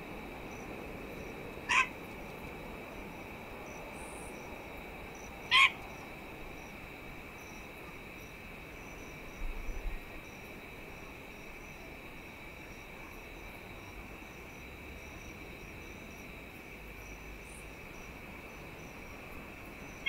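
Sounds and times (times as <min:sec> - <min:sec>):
insect drone: 0:00.0 - 0:20.0
bird calls: 0:01.7 - 0:01.9.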